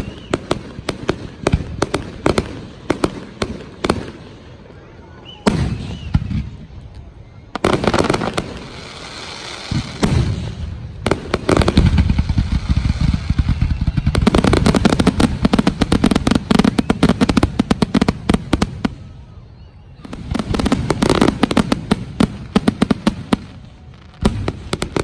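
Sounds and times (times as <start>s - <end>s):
rapid firework cracks: 9.6s - 18.9s.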